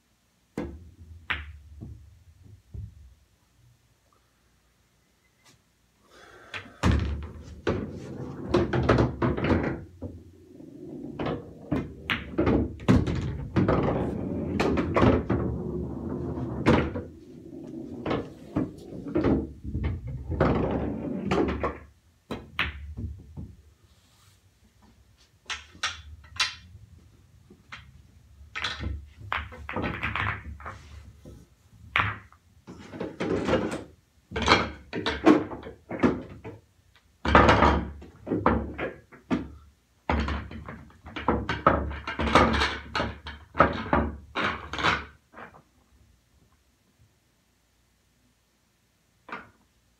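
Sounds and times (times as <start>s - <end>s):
pool balls clacking: 0.6s - 3.1s, 6.6s - 23.6s, 25.4s - 26.9s, 27.5s - 30.9s, 31.9s - 36.6s, 37.2s - 45.7s
balls rolling in return channel: 6.5s - 23.6s, 25.4s - 31.2s, 31.9s - 45.7s
balls knocking into rack: 6.6s - 23.5s.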